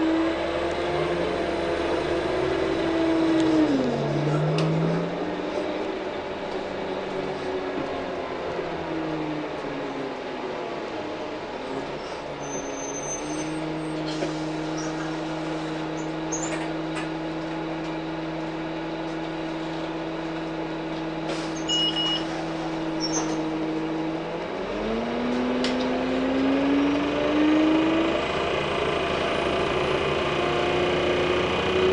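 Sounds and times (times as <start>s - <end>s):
bus engine drone: 0.0s - 31.9s
short high beeps: 21.7s - 22.3s.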